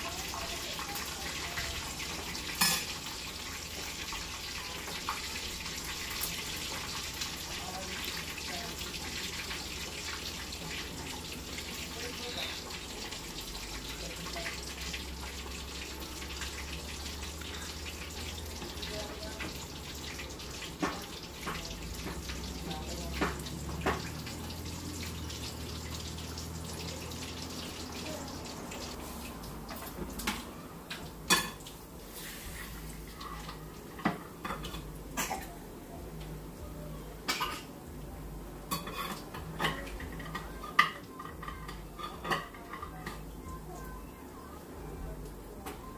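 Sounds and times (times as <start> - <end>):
utensil clinking on cookware: 2.5 - 3.1
food hissing on stovetop: 32.0 - 33.8.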